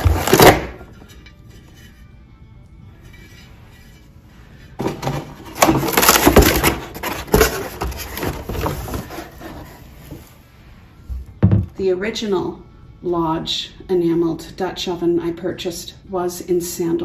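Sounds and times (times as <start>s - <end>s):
cardboard packaging rustling: 0.0s - 0.8s, 4.8s - 10.3s.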